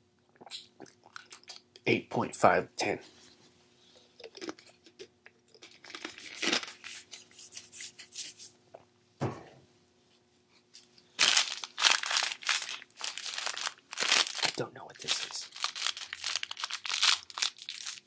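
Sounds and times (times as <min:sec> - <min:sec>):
plastic wrapper crinkling and tearing: 0:05.6 - 0:07.1, 0:11.2 - 0:18.0.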